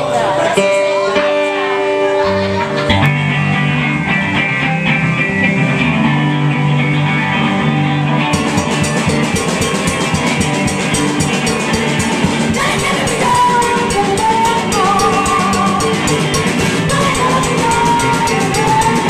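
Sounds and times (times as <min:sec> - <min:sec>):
electric guitars strumming: 0:00.0 - 0:19.0
drum kit and cymbals: 0:08.3 - 0:19.0.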